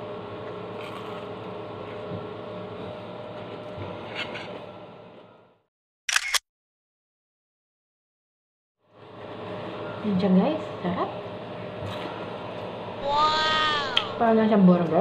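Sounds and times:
room hum: 8.9 - 15.0.

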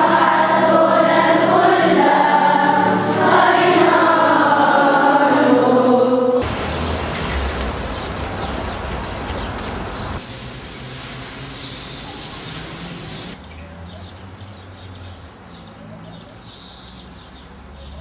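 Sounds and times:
loud steady hiss: 6.4 - 13.4
birds chirping: 6.4 - 18.0.

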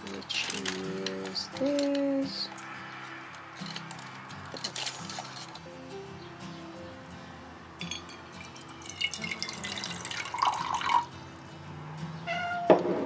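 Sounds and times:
liquid pouring into metal mug: 8.4 - 11.1
cat meowing: 12.2 - 12.8.

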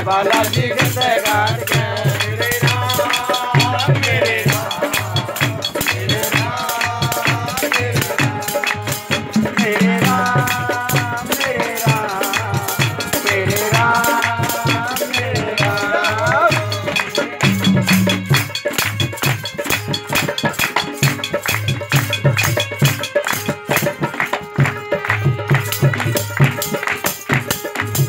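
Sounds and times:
fast drum beat: 0.0 - 28.0
hand claps: 17.4 - 28.0.

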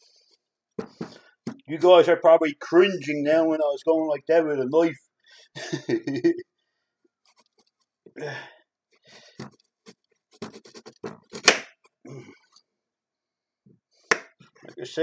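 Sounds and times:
knife scraping carrot skin: 9.8 - 11.6.

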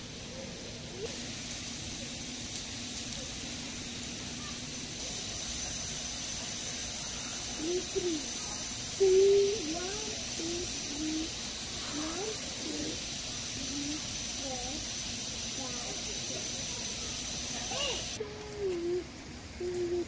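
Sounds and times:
water spraying and splashing: 0.9 - 18.2
pigeon cooing: 7.6 - 8.4, 9.0 - 13.0, 17.8 - 20.0.

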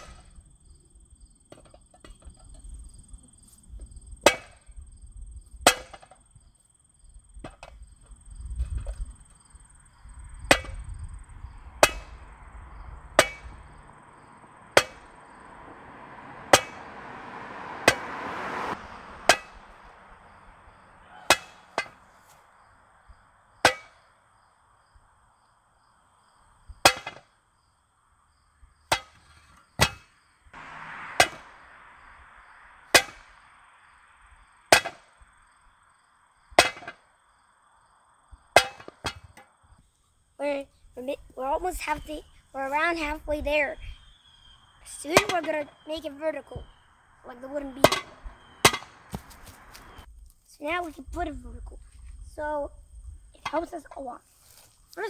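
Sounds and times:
sledgehammer striking wood: 4.2 - 4.7, 5.6 - 6.2, 10.5 - 11.0, 11.8 - 12.3, 13.1 - 13.6, 14.7 - 15.2, 16.5 - 16.9, 17.8 - 18.1, 19.2 - 19.8, 21.1 - 22.1, 23.6 - 24.1, 26.8 - 27.3, 28.9 - 30.2, 31.1 - 31.6, 32.9 - 33.4, 34.7 - 35.2, 36.5 - 37.0, 38.6 - 39.4, 47.8 - 50.0.

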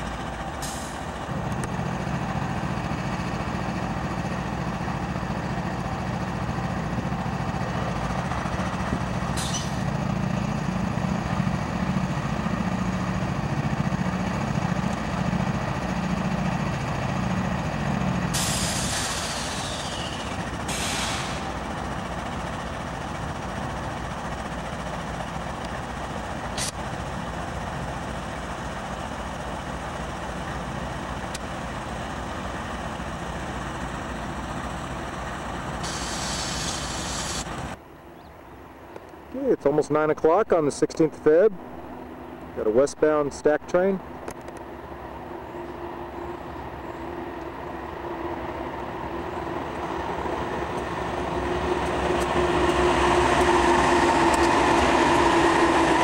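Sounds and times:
diesel locomotive engines droning: 0.0 - 56.0
air brake hiss: 9.4 - 9.8, 18.3 - 21.6, 35.8 - 37.5.

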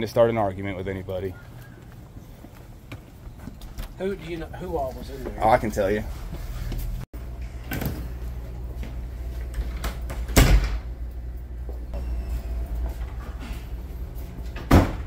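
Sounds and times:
steady low hum: 0.0 - 15.0
door thumping shut: 10.3 - 10.9, 14.6 - 15.0.

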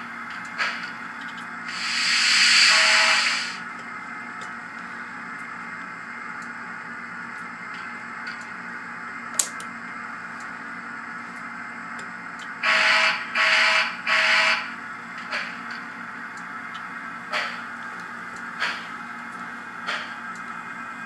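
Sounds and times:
steam locomotive low hiss: 0.0 - 3.7
sharp click: 9.4 - 9.7.

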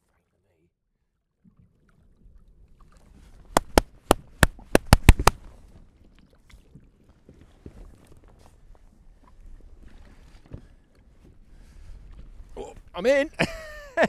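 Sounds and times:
water washing around kayak: 1.8 - 13.4
hands clapping sharply: 3.6 - 5.4.

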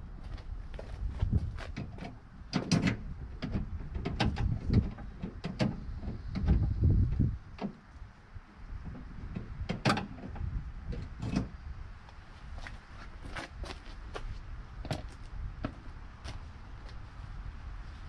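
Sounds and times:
parts clicking and knocking: 1.7 - 6.7.

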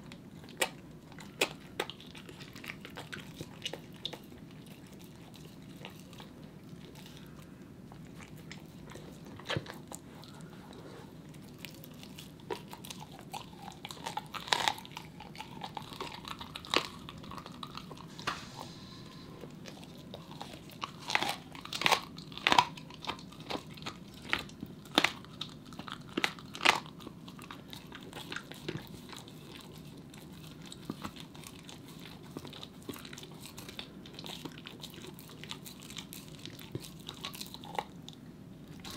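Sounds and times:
dog chewing bone: 0.0 - 18.4, 19.1 - 38.9.

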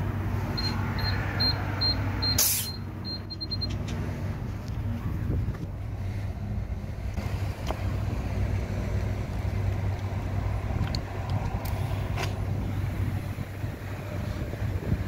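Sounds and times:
air hose clicks and hisses: 10.8 - 12.4.

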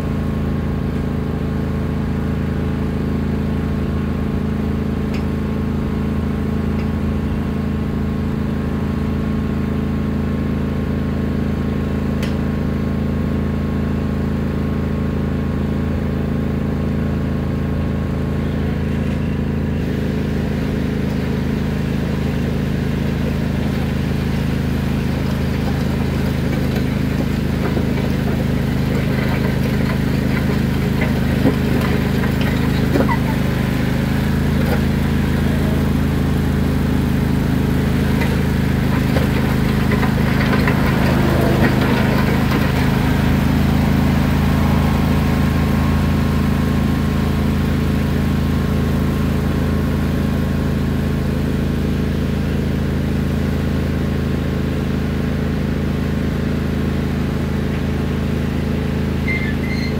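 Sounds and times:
lawn tractor engine running: 0.0 - 59.9
gravel crunching and scraping: 18.6 - 35.8, 37.7 - 44.2.

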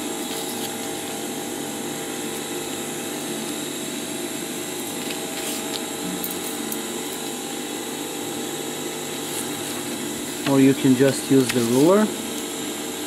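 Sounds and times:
electric motor hum: 0.0 - 13.0.

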